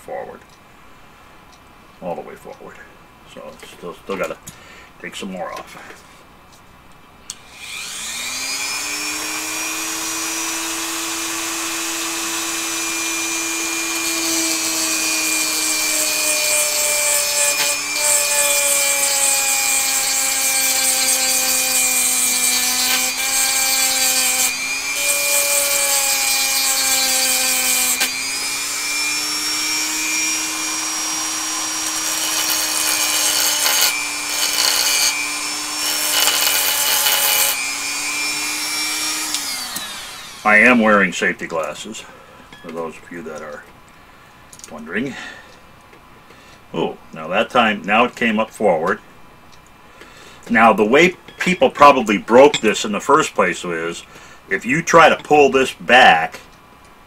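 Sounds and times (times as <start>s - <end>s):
rotary tool whining: 7.3s - 41.0s
grinding stone grinding steel: 7.5s - 41.6s.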